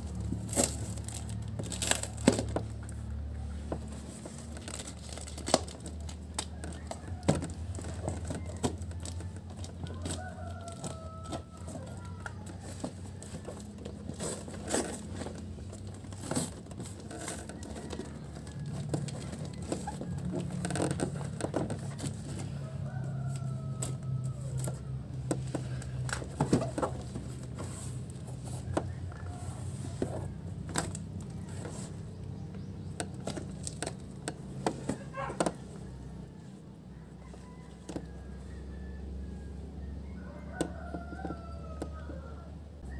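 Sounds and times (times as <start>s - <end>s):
box handling clicks and scrapes: 0.0s - 36.4s
rooster crowing: 6.3s - 15.3s, 21.9s - 30.5s, 34.8s - 42.9s.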